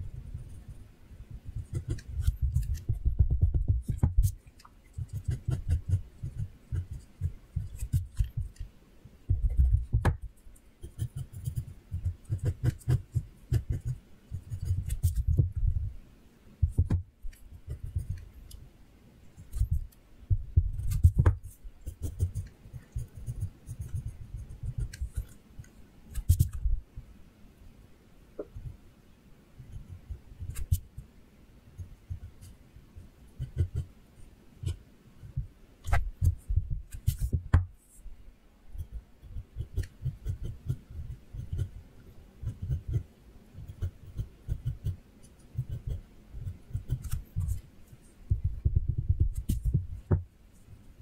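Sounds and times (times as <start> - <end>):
pencil scratching on paper: 1.5 - 8.6, 10.8 - 15.4, 16.7 - 18.3, 20.7 - 25.4, 26.1 - 26.7, 33.3 - 33.9, 35.9 - 38.0, 38.8 - 41.8, 42.4 - 47.6, 49.3 - 49.8.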